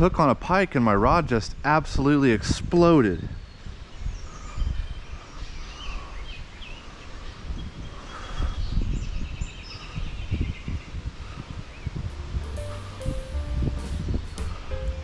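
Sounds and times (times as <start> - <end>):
small birds chirping: 3.4 - 12.1.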